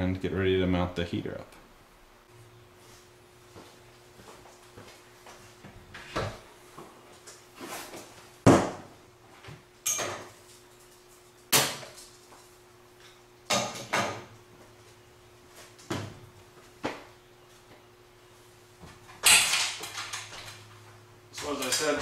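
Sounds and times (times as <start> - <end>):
faint electrical hum: 0.0 - 22.0
objects knocking and clunking: 13.1 - 14.3.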